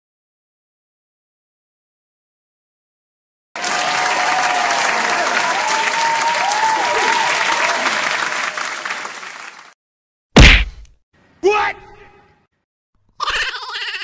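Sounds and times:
crowd applauding: 3.6s - 9.8s
loud hit: 10.4s - 10.9s.

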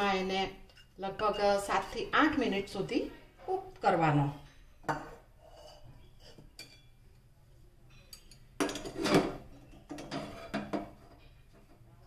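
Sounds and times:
wooden spatula scraping metal pot: 4.9s - 6.8s.

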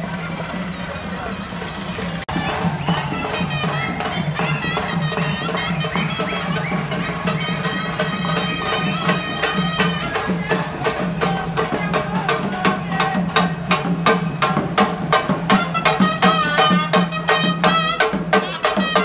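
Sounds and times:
drum strokes: 0.0s - 19.0s
reedy pipe melody: 2.3s - 11.2s.

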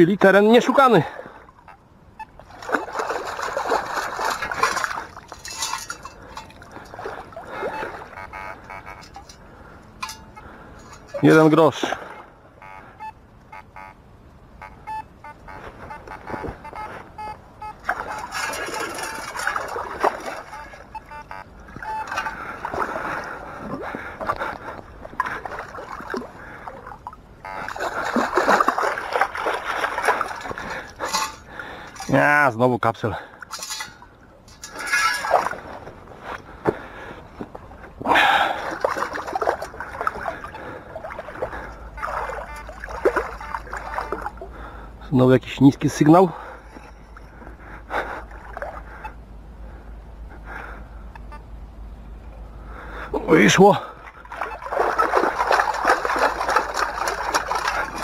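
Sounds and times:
water sloshing through a sieve: 2.4s - 8.2s, 10.8s - 12.1s, 17.8s - 21.2s, 21.8s - 32.3s, 33.3s - 36.0s, 38.2s - 44.6s, 53.4s - 58.0s
gravel and stones clinking: 3.5s - 7.0s, 18.1s - 20.8s, 33.4s - 35.9s
metal detector beeps: 7.6s - 9.4s, 10.0s - 11.4s, 12.6s - 14.0s, 14.6s - 19.6s, 20.4s - 22.4s, 27.4s - 27.8s, 41.9s - 44.3s.

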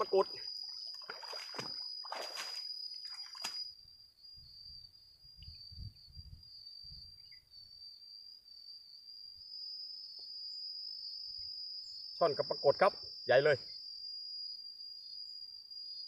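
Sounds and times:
high-pitched insect drone: 0.0s - 16.0s
water splashing and draining: 1.0s - 2.6s.

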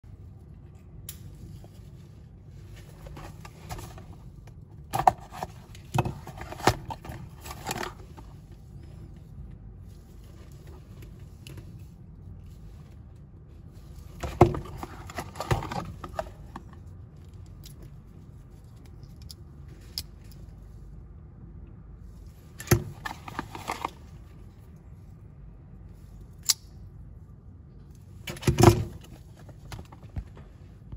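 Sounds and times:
low steady hum: 0.0s - 30.9s.

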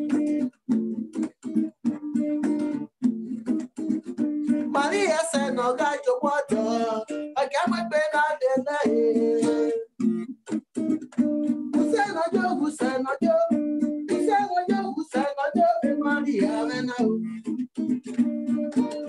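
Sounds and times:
acoustic guitar strumming: 0.0s - 19.0s
man singing: 4.7s - 9.9s, 11.7s - 17.4s.

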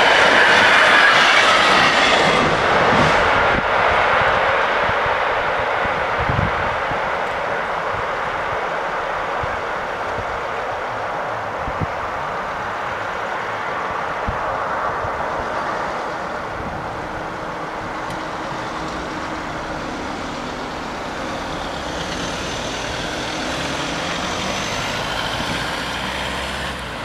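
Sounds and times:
car and van engines running: 6.3s - 27.0s.

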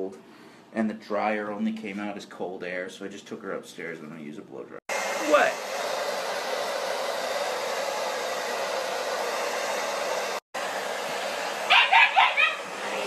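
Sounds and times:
blow dryer running: 4.9s - 13.0s
puppy yipping: 11.7s - 12.7s.

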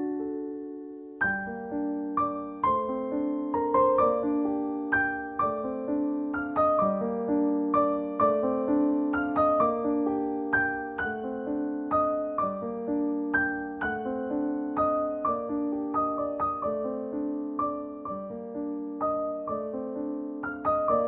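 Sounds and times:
piano music: 0.0s - 21.0s.

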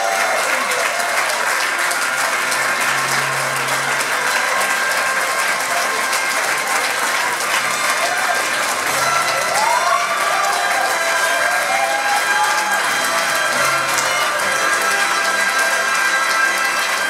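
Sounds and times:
crowd applauding: 0.0s - 17.0s.

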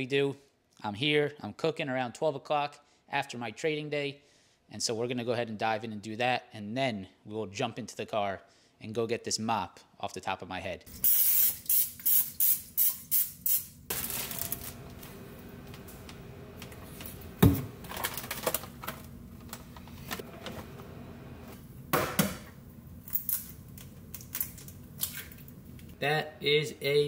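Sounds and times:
aerosol spray hissing: 11.0s - 13.7s.

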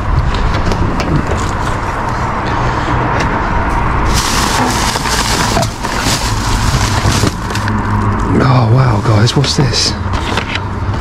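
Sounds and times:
plastic bags rustling: 4.0s - 8.4s.

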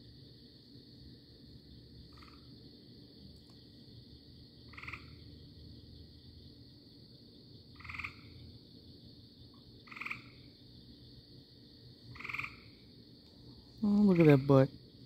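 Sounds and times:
treefrog trilled calls: 2.1s - 2.5s, 4.7s - 5.4s, 7.8s - 8.4s, 9.8s - 10.4s, 12.1s - 12.8s, 13.8s - 14.7s.

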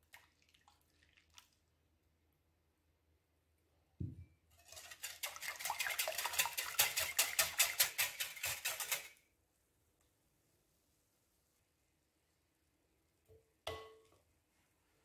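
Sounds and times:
low thump: 4.0s - 4.2s
whisk beating in a glass bowl: 4.6s - 9.2s.

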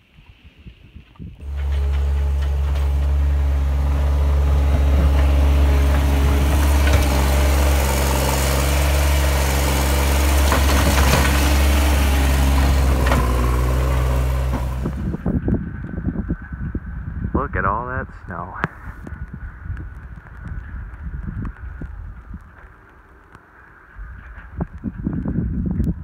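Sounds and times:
diesel engine running: 1.4s - 15.4s.

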